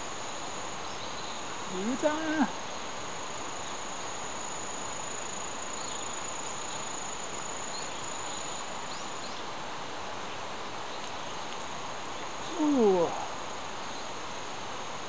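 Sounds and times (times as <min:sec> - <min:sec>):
background hiss: 0:00.0 - 0:15.0
insect trilling: 0:01.6 - 0:02.6, 0:12.4 - 0:13.4.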